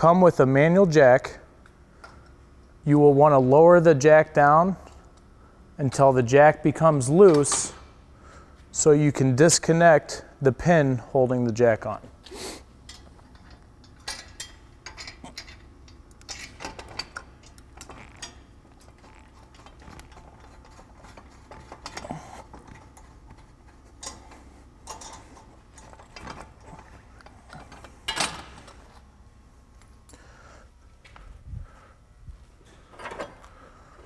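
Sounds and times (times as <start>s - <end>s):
crank jack clicking and rattling: 12.9s - 28.8s.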